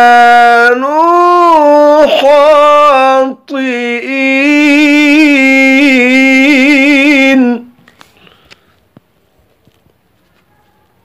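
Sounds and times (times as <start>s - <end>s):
man reciting in melodic chant: 0.0s - 7.8s.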